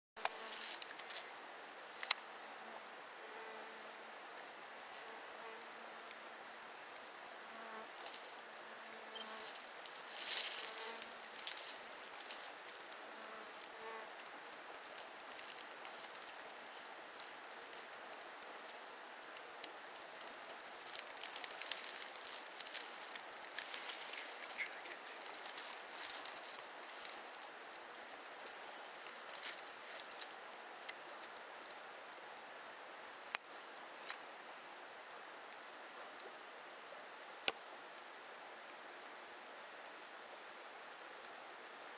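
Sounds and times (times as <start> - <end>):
flying insect buzzing: 0.2 - 0.8, 7.5 - 11.5, 13.0 - 14.2
soft crackles and rustles: 0.2 - 41.9.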